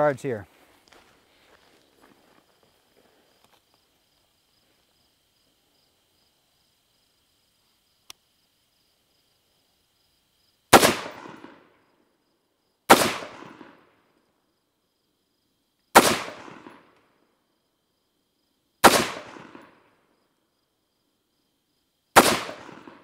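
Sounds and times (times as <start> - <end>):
rifle shots with echo: 10.7 - 11.8, 12.9 - 13.9, 16.0 - 16.9, 18.8 - 19.9, 22.2 - 23.0.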